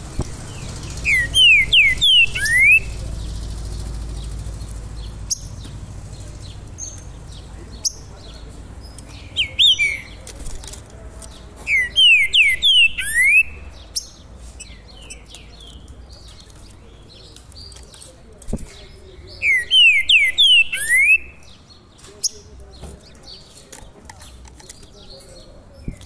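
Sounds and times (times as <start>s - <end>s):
songbird whistled singing: 0.1s - 10.3s, 11.7s - 17.8s, 19.2s - 22.5s.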